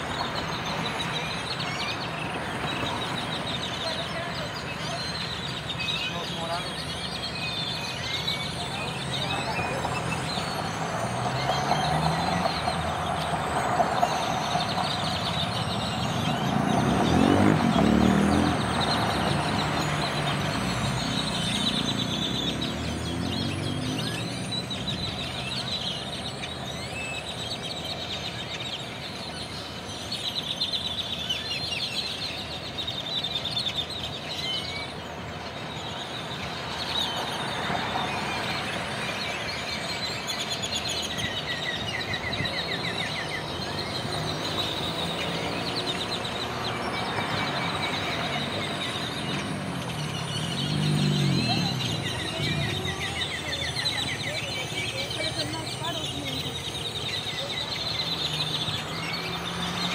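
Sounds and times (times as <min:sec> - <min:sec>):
flock of birds chattering: 0:00.0 - 0:59.9
road traffic: 0:00.0 - 0:59.9
vehicle passing: 0:08.4 - 0:27.5, 0:35.5 - 0:59.9.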